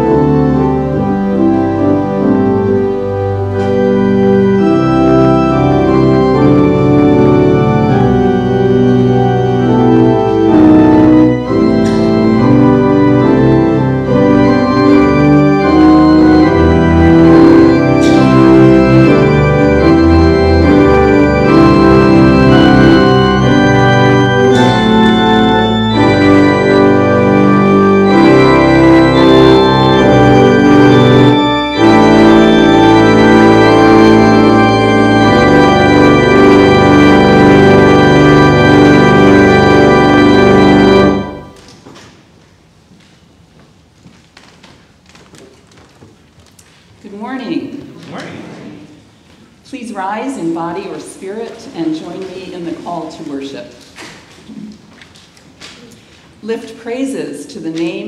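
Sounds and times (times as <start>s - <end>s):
church organ chords: 0.0s - 41.9s.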